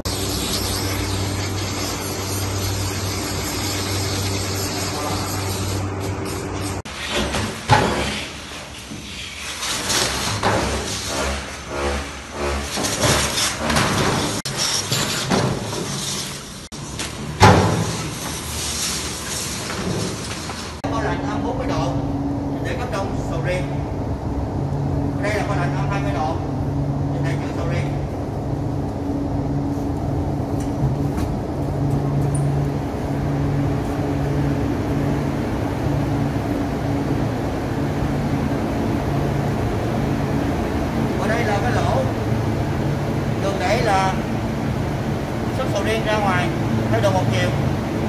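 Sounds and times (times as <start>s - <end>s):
refrigeration machinery hum: 0.0s - 48.0s
steady background noise: 0.0s - 48.0s.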